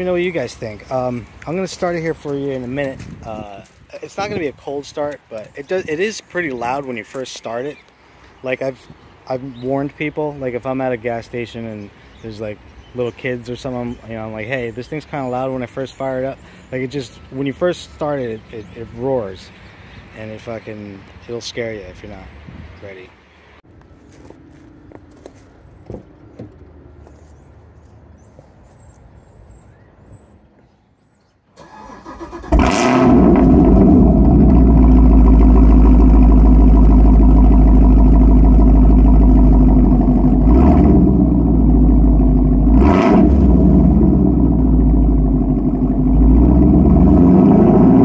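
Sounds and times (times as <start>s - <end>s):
faint outdoor background: 0.0s - 48.0s
car engine starting: 31.6s - 48.0s
engine throttle blips: 31.6s - 48.0s
car engine idling loudly: 33.2s - 42.8s.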